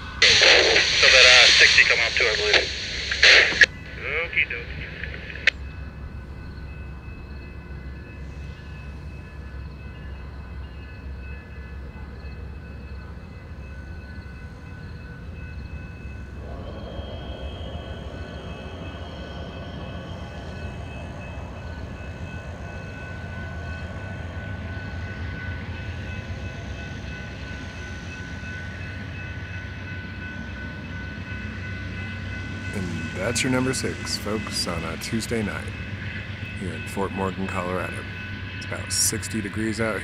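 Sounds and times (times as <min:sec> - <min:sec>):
thin whine: 0:00.0 - 0:05.6, 0:16.2 - 0:29.1
diesel locomotive rumble: 0:00.0 - 0:40.0
passenger cars rolling: 0:16.1 - 0:27.4, 0:32.6 - 0:40.0.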